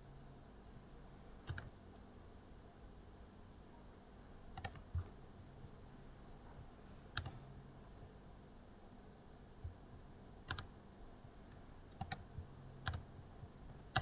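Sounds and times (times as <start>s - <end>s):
faint low hum: 0.0s - 14.0s
computer mouse clicks: 1.4s - 2.1s, 4.5s - 5.2s, 7.1s - 7.4s, 10.4s - 10.7s, 11.5s - 13.1s.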